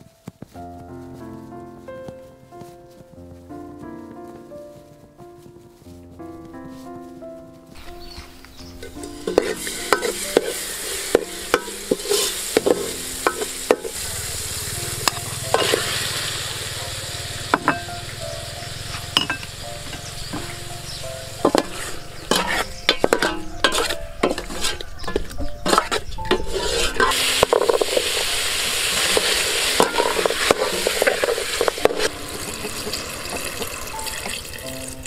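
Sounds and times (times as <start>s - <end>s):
food sizzling in hot oil: 8.5s - 25.1s, 25.8s - 35.0s
metal ladle scraping a pot: 8.8s - 14.0s, 14.9s - 16.1s, 21.4s - 34.4s.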